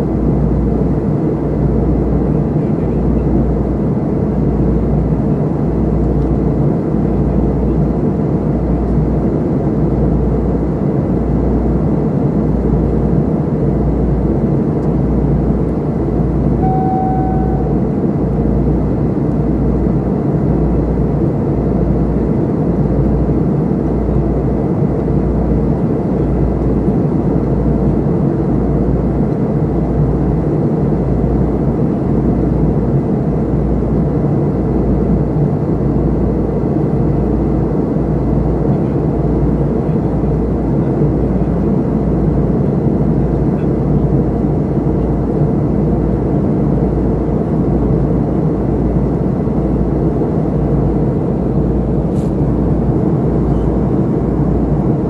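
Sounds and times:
airliner cabin engine rush: 0.0s - 55.0s
short beep: 16.6s - 17.8s.

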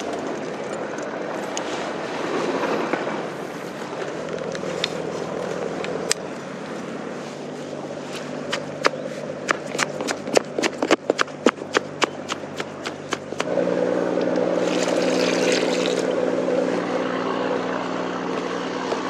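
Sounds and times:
bait scoop scraping in bucket: 14.6s - 16.2s.

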